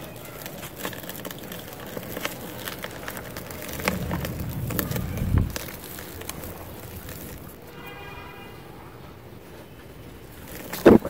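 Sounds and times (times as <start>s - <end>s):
cement lump crumbling in hands: 0.0s - 7.7s.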